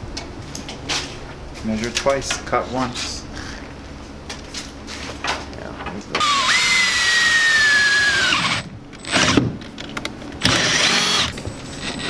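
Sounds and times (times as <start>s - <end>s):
cordless drill drilling into metal: 6.2s - 9.4s, 10.4s - 12.0s.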